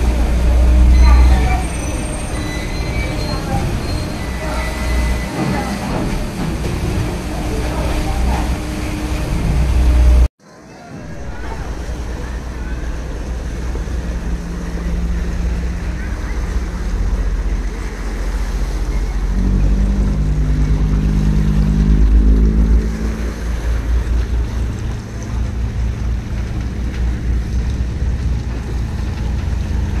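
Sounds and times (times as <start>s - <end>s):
water lapping: 0.0s - 10.3s, 10.9s - 30.0s
ferry engine hum: 0.0s - 30.0s
low droning tones: 11.0s - 30.0s.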